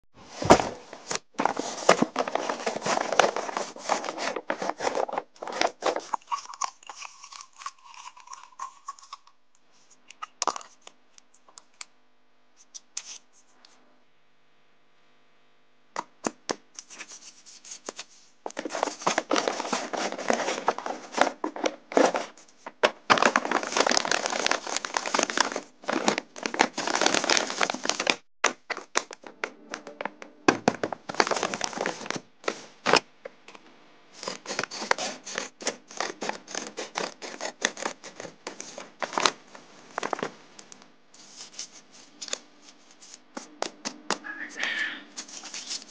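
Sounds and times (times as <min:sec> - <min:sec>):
paper rustling and tearing: 0:00.3 - 0:09.2, 0:16.8 - 0:29.2, 0:30.8 - 0:33.0, 0:34.2 - 0:40.3, 0:41.2 - 0:43.7, 0:45.1 - 0:45.9.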